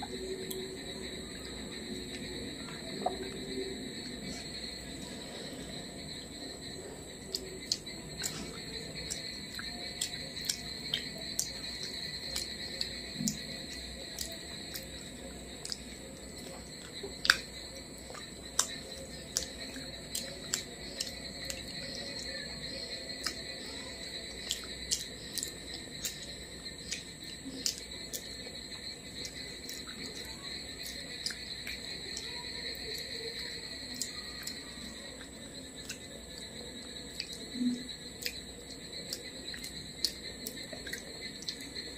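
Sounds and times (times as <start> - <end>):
high-pitched insect whine: 0.0 - 41.9
wet mouth clicks and smacks: 7.3 - 13.5, 15.6 - 15.8, 16.4 - 17.5, 18.1 - 21.7, 23.2 - 23.4, 24.4 - 26.2, 26.8 - 28.3, 30.8 - 31.8, 38.2 - 38.4.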